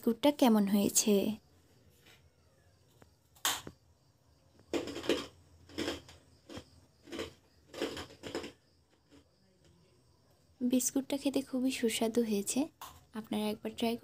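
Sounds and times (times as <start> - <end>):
biscuit crunching: 4.6 - 9.4.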